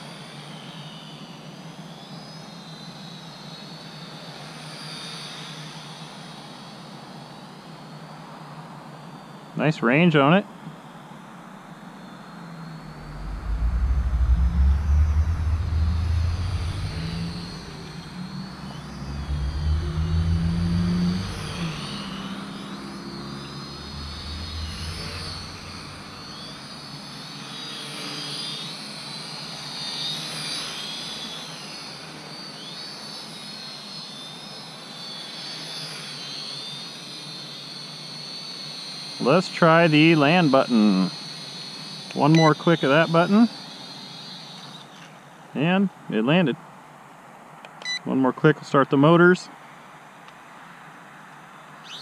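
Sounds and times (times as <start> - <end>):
quadcopter motors whining: 0.0 - 46.5, 50.2 - 52.0
wind rumbling on microphone: 12.8 - 22.8, 23.4 - 26.9.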